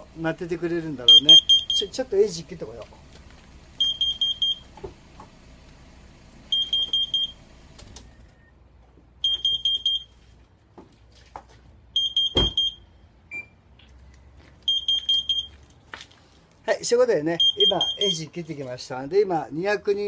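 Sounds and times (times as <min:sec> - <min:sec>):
alarm high-pitched beeps: 0:01.1 - 0:02.0, 0:03.8 - 0:04.6, 0:06.5 - 0:07.4, 0:09.2 - 0:10.1, 0:12.0 - 0:13.5, 0:14.7 - 0:15.5, 0:17.4 - 0:18.3
car door shutting: 0:12.3 - 0:12.7.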